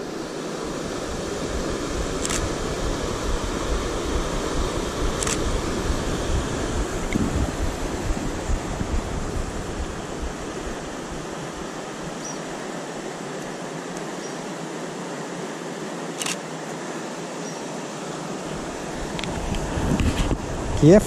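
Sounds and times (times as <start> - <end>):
river water rushing over rocks: 0.0 - 20.8
wind rumble on microphone: 0.6 - 12.2, 18.6 - 21.0.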